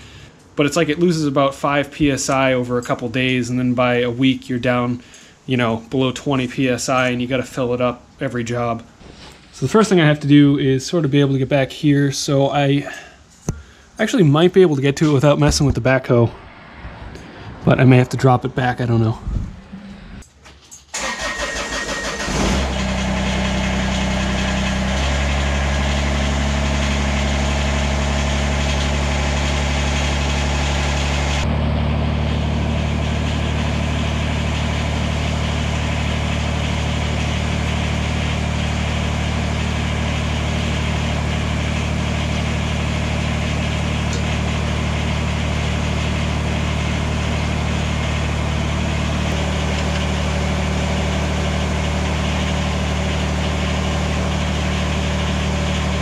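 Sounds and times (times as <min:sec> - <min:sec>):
diesel engine cranking and running: 0:19.0 - 0:56.0.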